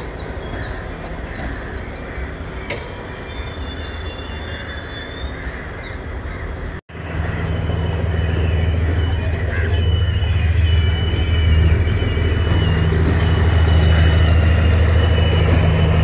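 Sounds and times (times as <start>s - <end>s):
train wheels rumbling on rails: 0.0s - 4.6s, 6.6s - 16.0s
birds chirping: 0.0s - 16.0s
deep engine drone: 6.9s - 16.0s
wheel squeal: 7.3s - 16.0s.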